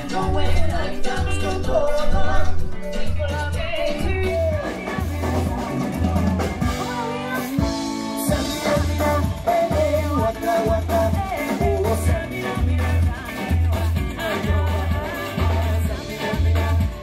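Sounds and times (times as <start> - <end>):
deep bass notes pulsing: 0.0 - 6.7
woman singing into a microphone: 0.0 - 16.3
bass guitar: 0.0 - 17.0
drum kit: 0.0 - 17.0
electric guitars: 0.0 - 17.0.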